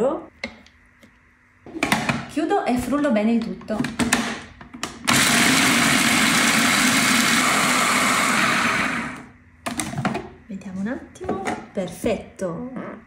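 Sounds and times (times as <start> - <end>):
food processor motor grinding: 5.0 - 9.4.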